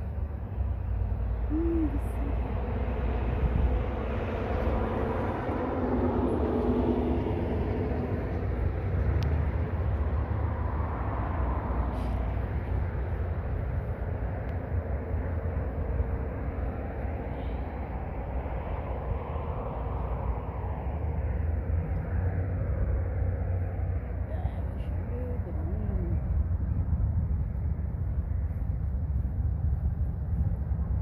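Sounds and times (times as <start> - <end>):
low outdoor rumble: 0.0 - 31.0.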